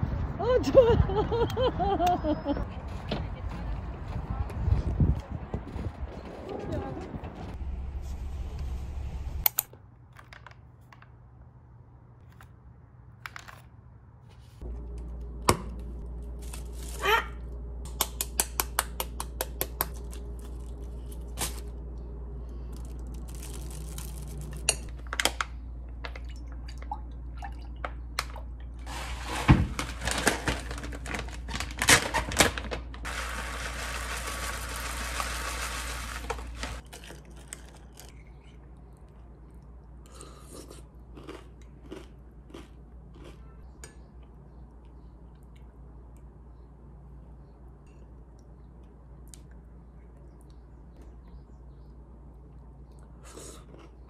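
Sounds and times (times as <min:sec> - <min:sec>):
background hum: 0:00.0 - 0:54.0
plastic rustling: 0:16.1 - 0:17.4, 0:22.6 - 0:25.4, 0:28.8 - 0:37.6
soft eating sounds: 0:36.8 - 0:54.0.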